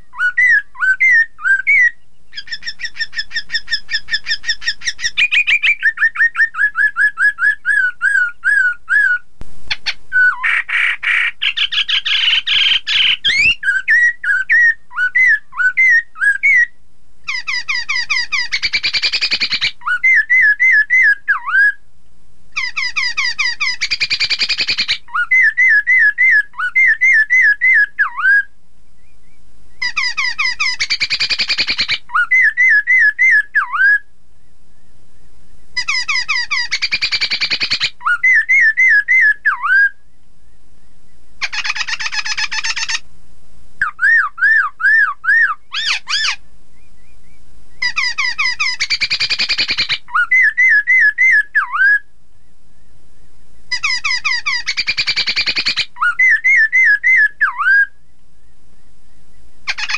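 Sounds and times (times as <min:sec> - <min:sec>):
bird singing whistled notes: 0:00.0 - 0:21.8, 0:22.6 - 0:43.0, 0:43.8 - 0:59.9
bird harsh chattering: 0:00.4 - 0:06.4, 0:07.7 - 0:16.7, 0:17.3 - 0:21.5, 0:22.6 - 0:27.8, 0:29.8 - 0:33.8, 0:35.8 - 0:39.4, 0:41.4 - 0:43.0, 0:44.2 - 0:46.4, 0:47.8 - 0:51.7, 0:53.7 - 0:57.6, 0:59.7 - 0:59.9.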